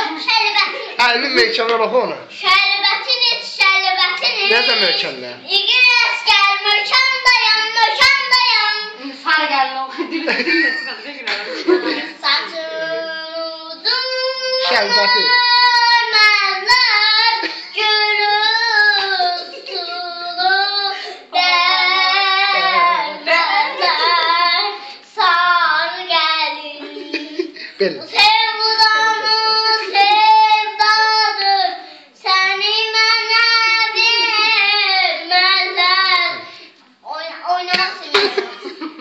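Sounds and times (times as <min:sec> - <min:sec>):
girl singing unaccompanied: 0:00.0 - 0:01.0, 0:02.3 - 0:10.1, 0:11.6 - 0:38.6
girl breathing: 0:20.9 - 0:21.4, 0:27.5 - 0:27.8, 0:31.8 - 0:32.2.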